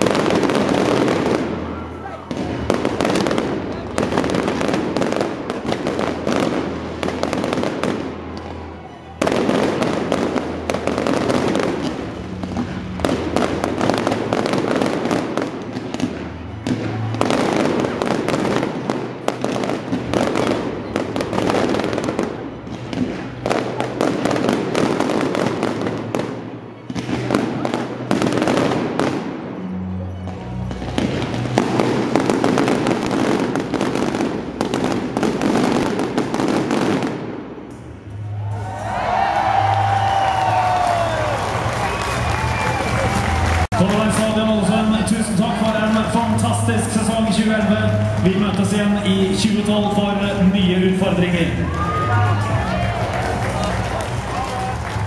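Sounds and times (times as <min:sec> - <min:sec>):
fireworks crackling: 0:00.0 - 0:55.0.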